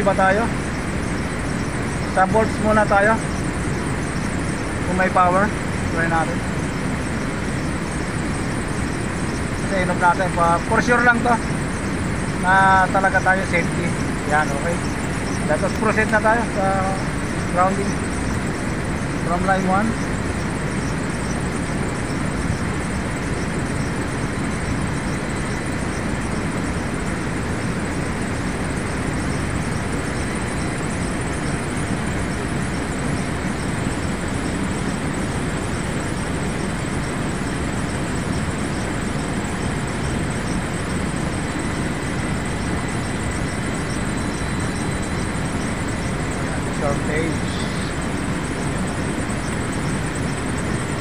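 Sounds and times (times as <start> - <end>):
steady rushing noise: 0.0 - 51.0.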